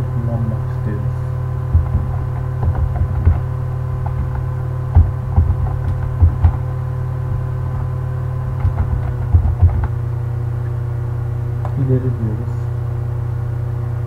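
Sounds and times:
low electrical hum: 0.0s - 14.0s
computer keys typing: 1.7s - 6.7s, 7.3s - 10.0s.

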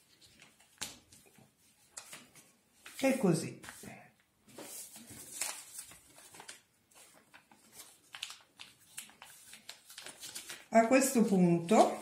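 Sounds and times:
paper being folded: 0.0s - 12.0s.

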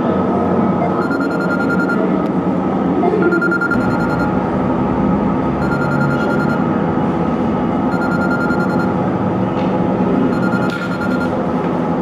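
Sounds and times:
smartphone ringtone ringing: 0.8s - 2.0s, 3.1s - 4.3s, 5.6s - 6.6s, 7.9s - 8.9s, 10.3s - 11.4s.

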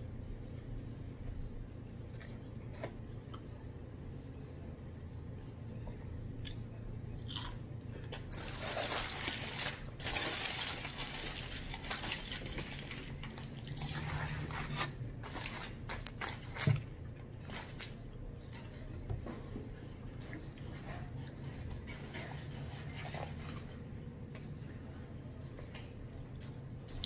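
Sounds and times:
chewing and crunching food: 6.4s - 18.9s
paper and foil crinkling: 8.1s - 18.0s.

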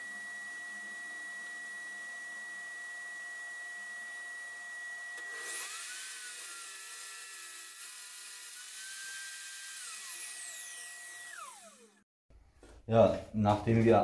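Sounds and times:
table saw cutting plywood: 5.2s - 12.0s.

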